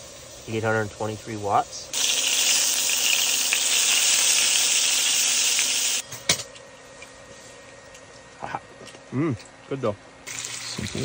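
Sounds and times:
bacon sizzling in a pan: 1.3 - 6.0, 10.3 - 11.0.

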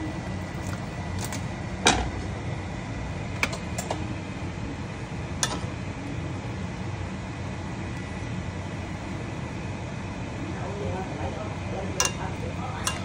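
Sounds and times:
water boiling in pan: 0.0 - 13.0.

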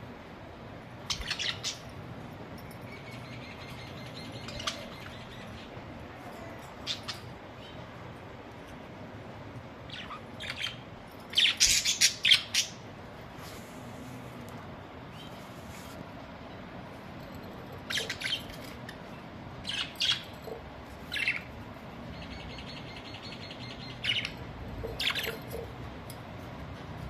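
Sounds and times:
budgerigars chirping and squawking: 1.1 - 1.9, 3.1 - 5.8, 9.9 - 12.8, 17.8 - 19.0, 19.6 - 25.7.

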